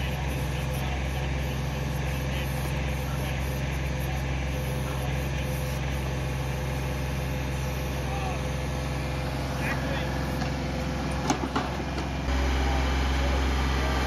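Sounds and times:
tractor engine running: 0.0 - 14.0.

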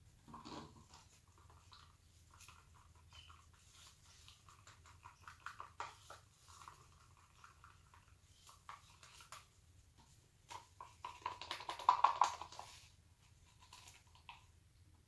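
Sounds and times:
stir stick scraping plastic cup: 0.3 - 9.5.

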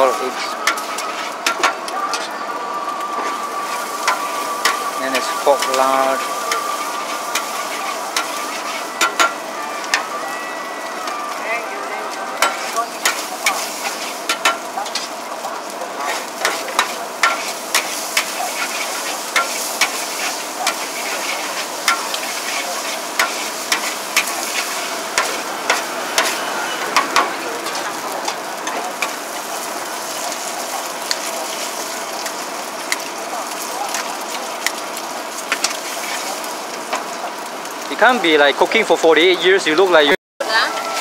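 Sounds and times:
noodles sizzling in a wok: 0.0 - 41.0
metal spatula clanking on wok: 7.4 - 10.1, 12.4 - 15.1.

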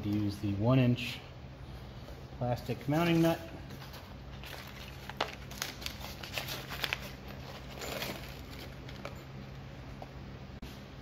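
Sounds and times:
packing wrapping crinkling: 3.0 - 9.3.

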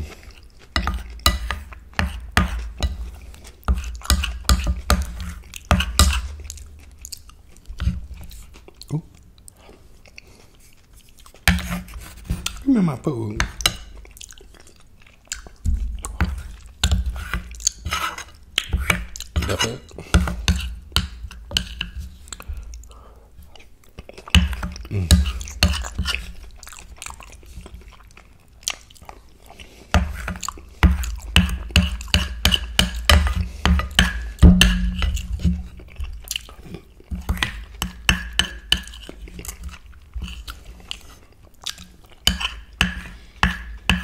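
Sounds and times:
close chewing with mouth clicks: 0.0 - 44.0.

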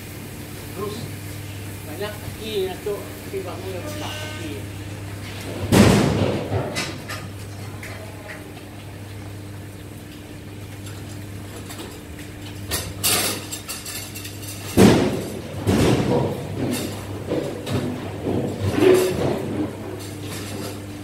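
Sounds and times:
cattle knocking metal barrier: 5.5 - 7.0.

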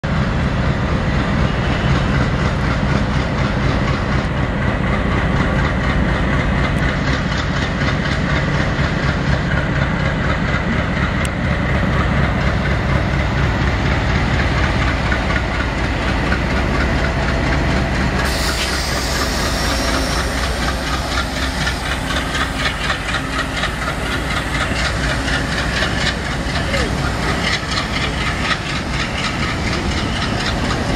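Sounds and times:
diesel locomotive engine working hard: 0.0 - 30.9
hiss of passing coaches: 18.2 - 28.0
wheels clattering over rail joints: 19.5 - 30.9.

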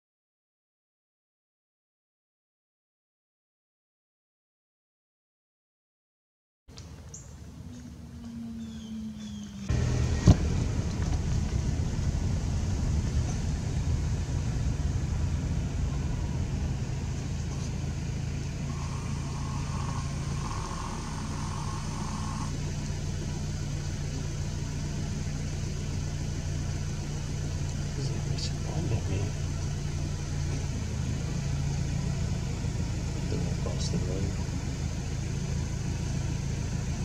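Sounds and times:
car engine running: 7.4 - 37.0.

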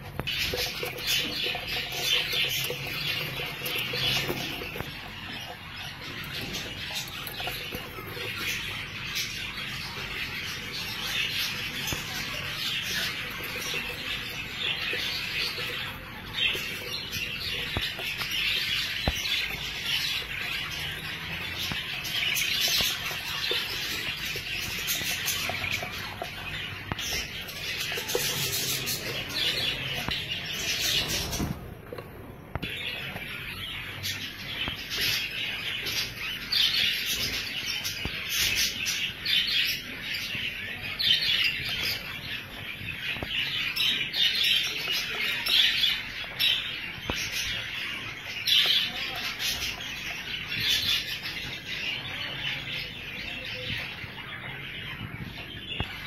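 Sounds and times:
budgerigars chirping: 0.0 - 56.0.

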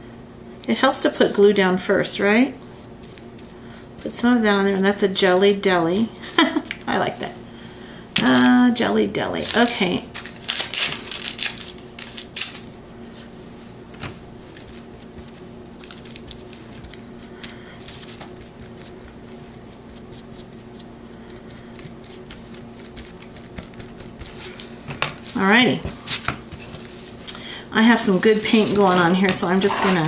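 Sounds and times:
steady low hum: 0.0 - 30.0
handling noises: 28.0 - 30.0.

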